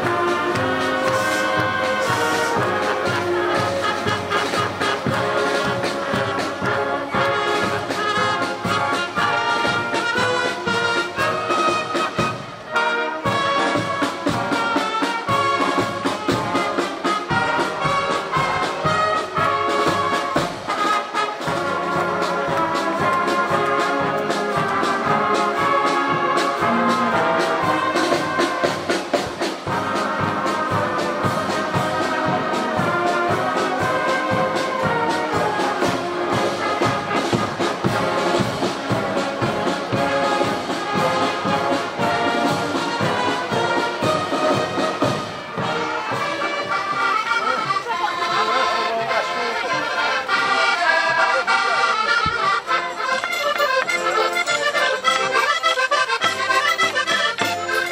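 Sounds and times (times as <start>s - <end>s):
marching brass band playing: 0.0s - 57.9s.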